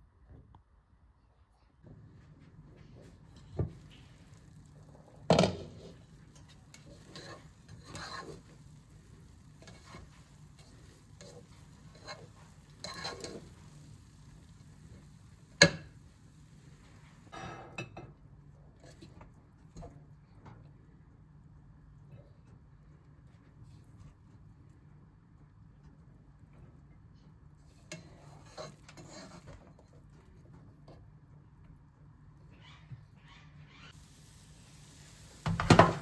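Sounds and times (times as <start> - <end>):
utensil stirring rice in metal pot: 3.2 - 16.2, 27.7 - 30.3.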